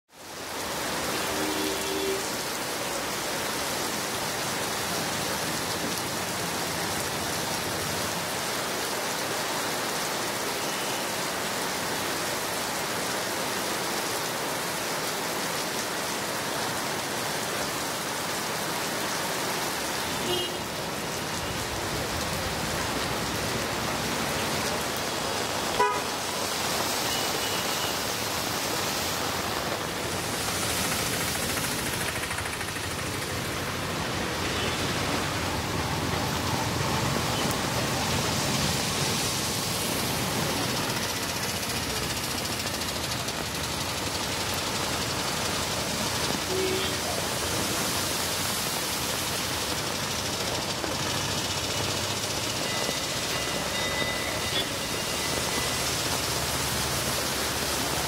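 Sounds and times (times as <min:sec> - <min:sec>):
heavy rain on a street: 0:00.1 - 0:58.0
vehicle horn toots: 0:01.2 - 0:02.3, 0:25.8 - 0:26.2, 0:46.5 - 0:47.0.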